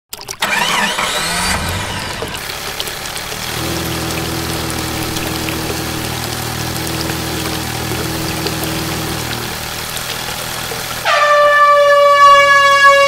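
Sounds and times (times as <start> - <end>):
creek water babbling over stones: 2.2 - 11.1
steady low drone: 3.4 - 11.0.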